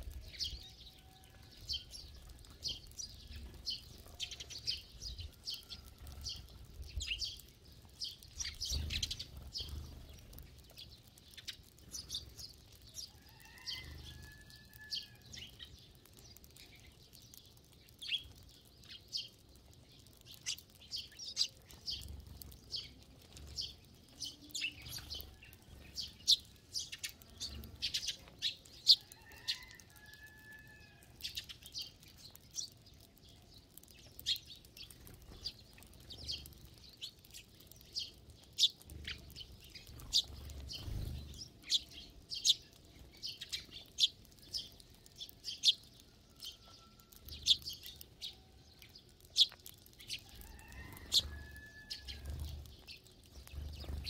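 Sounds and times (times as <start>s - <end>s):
sparrows chirping: 0.0s - 54.0s
wings fluttering: 1.2s - 15.7s, 20.1s - 32.7s, 34.0s - 44.8s, 49.2s - 54.0s.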